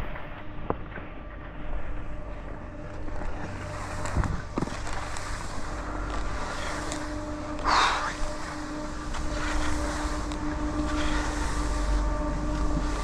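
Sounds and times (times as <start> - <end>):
skis swishing over snow: 2.8 - 13.0.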